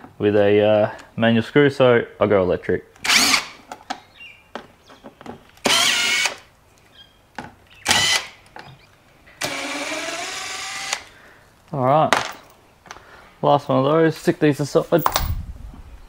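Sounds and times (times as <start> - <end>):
cordless power driver whirring: 3.0 - 3.4, 5.6 - 6.4.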